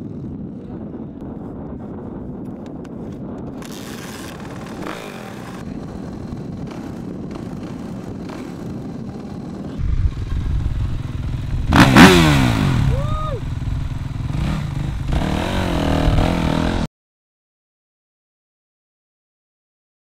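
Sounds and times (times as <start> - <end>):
motocross bike engine revving: 4.2 - 16.9.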